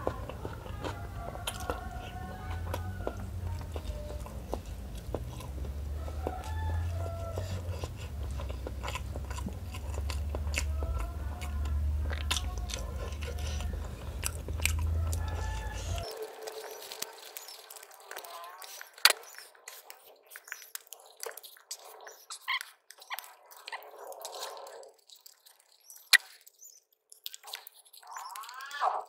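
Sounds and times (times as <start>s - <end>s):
low steady hum: 0.0s - 18.4s
wet chewing and lip smacks: 0.0s - 29.0s.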